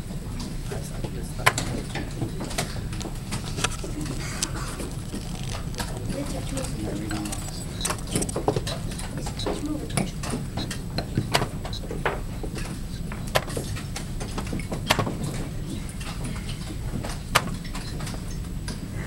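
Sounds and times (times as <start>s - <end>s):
murmur of hall: 0.0s - 13.4s.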